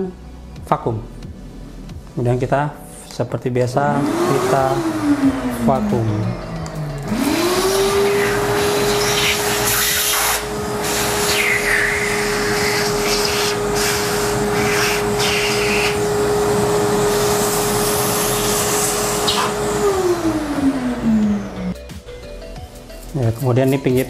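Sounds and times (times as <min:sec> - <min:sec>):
vacuum cleaner running: 0:03.8 - 0:21.8.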